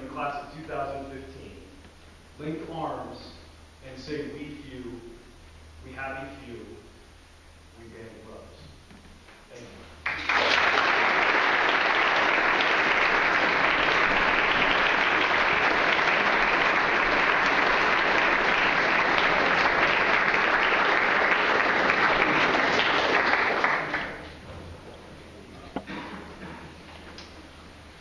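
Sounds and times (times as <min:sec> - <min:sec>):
audience applauding: 0:10.0 - 0:24.4.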